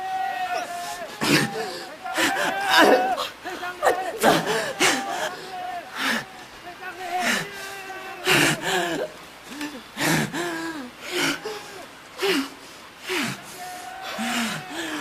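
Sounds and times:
person gasping and moaning: 7.2 - 13.5, 14.1 - 15.0.

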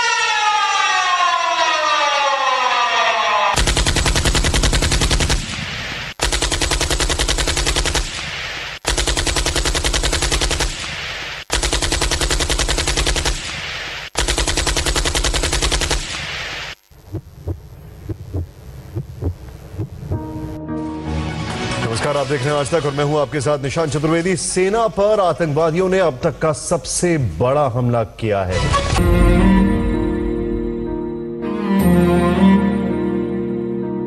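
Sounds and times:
siren falling in pitch: 0.0 - 3.6
machine-gun fire: 3.6 - 16.5.

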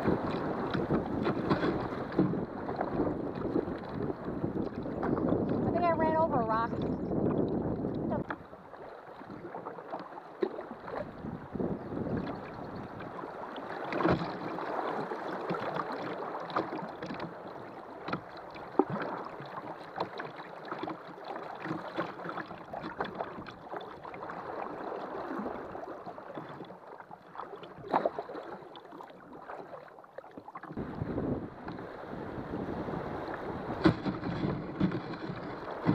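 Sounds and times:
water rushing and splashing: 0.0 - 35.9
knocks on kayak hull: 33.8 - 35.9.

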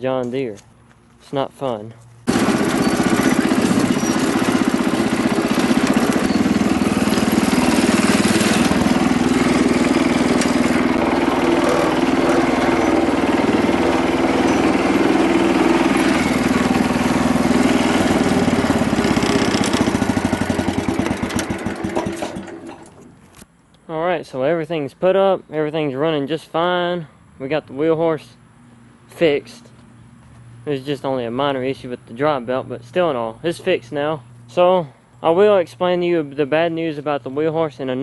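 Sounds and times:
garden tractor engine running: 1.7 - 23.4.

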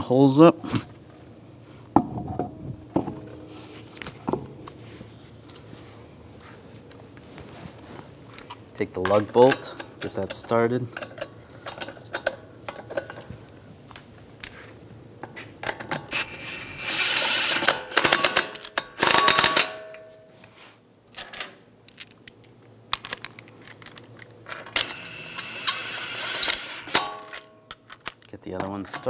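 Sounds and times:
impact wrench whining: 16.1 - 19.7, 24.8 - 27.4
impact wrench burst of blows: 16.1 - 19.8, 24.8 - 27.3.

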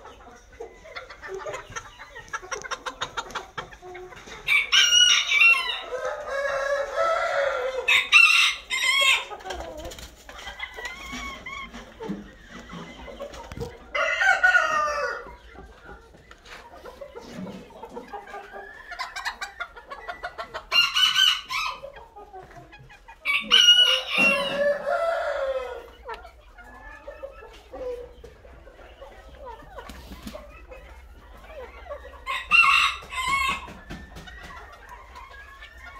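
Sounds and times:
chicken clucking: 0.0 - 35.9
roosters crowing: 4.2 - 9.5, 12.5 - 15.5, 20.5 - 21.9, 23.2 - 26.2, 31.7 - 35.9.

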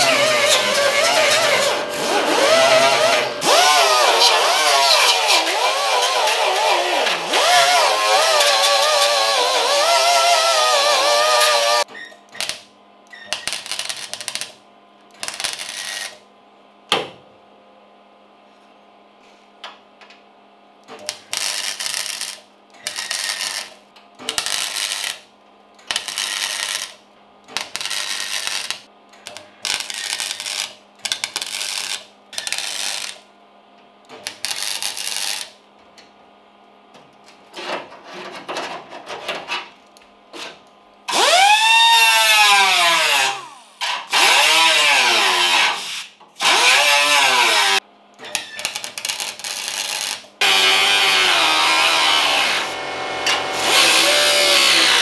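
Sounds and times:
welder crackling bursts: 0.0 - 11.8, 12.4 - 12.6, 13.3 - 14.6, 15.2 - 16.2, 21.1 - 25.2, 25.9 - 33.2, 34.2 - 35.6, 41.1 - 47.8, 48.6 - 55.0.

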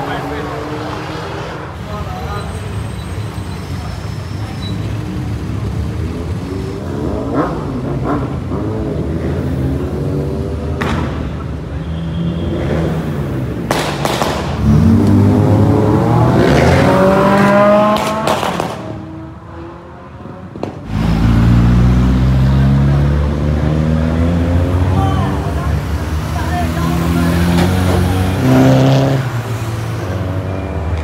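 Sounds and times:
car engines revving: 0.0 - 31.0
sharp cracks: 13.7 - 14.6, 17.9 - 19.0.

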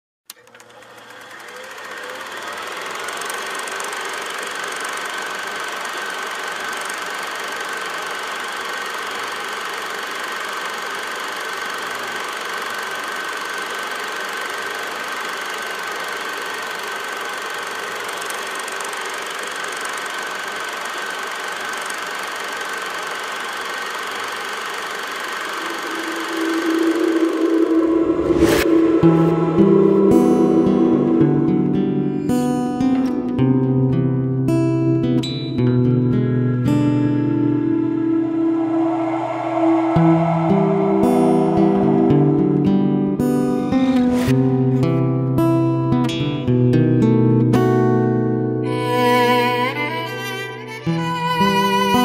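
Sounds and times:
whirring drone: 0.4 - 10.8, 21.7 - 33.5, 36.7 - 44.6
faint high hum: 25.0 - 33.4, 36.7 - 44.3
low musical note: 25.4 - 33.6, 36.6 - 44.8.

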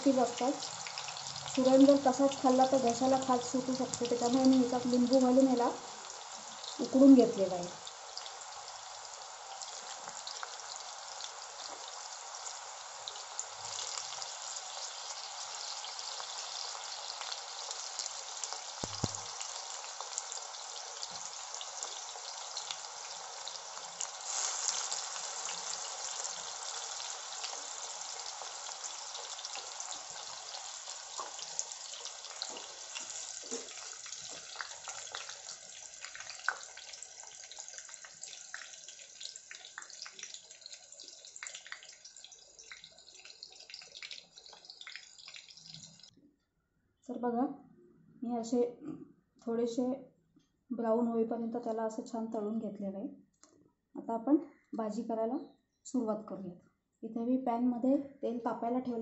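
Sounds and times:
deep-frying sizzle and crackle: 0.0 - 46.1.

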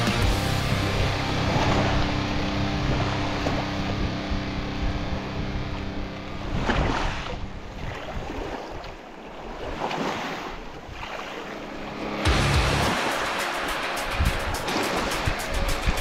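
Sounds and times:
wind on microphone: 0.8 - 11.3, 14.0 - 16.0
small waves washing over pebbles: 6.6 - 11.8.

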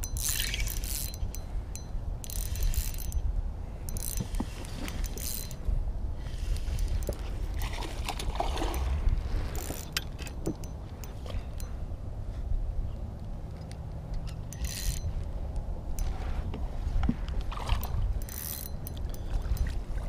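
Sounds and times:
fishing reel cranking: 0.0 - 3.3, 3.9 - 5.7, 8.7 - 11.7, 14.5 - 15.2, 17.8 - 19.7.

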